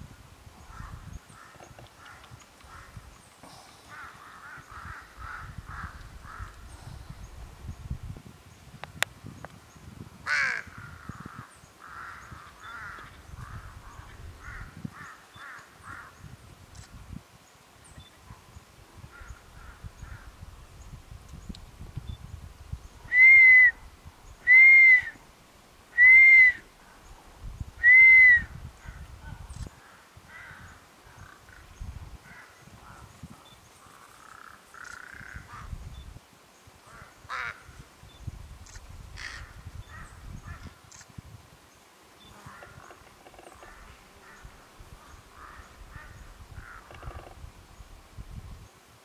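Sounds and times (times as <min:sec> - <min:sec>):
high whistled notes: 0:23.1 - 0:23.8, 0:24.5 - 0:25.2, 0:26.0 - 0:26.6, 0:27.8 - 0:28.5.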